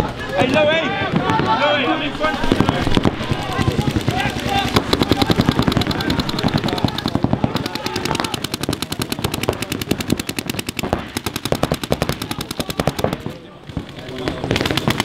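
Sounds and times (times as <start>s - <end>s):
paintball markers firing rapidly: 2.4s - 15.0s.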